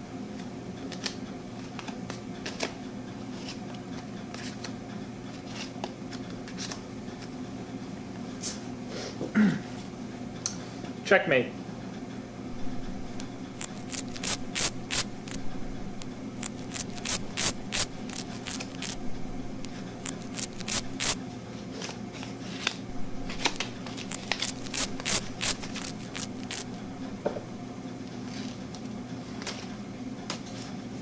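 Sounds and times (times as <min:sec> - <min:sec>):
steady low hum: 0:12.3 - 0:21.4, 0:22.8 - 0:28.0
playing cards flicking and snapping: 0:13.2 - 0:21.2, 0:23.3 - 0:26.8.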